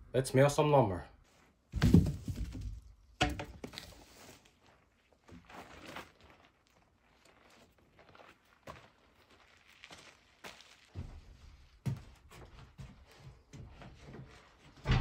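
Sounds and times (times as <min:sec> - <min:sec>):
heavy wooden thuds of logs: 0:01.7 - 0:04.0
logs knocking: 0:01.8 - 0:03.9
scuffing footsteps: 0:03.6 - 0:15.0.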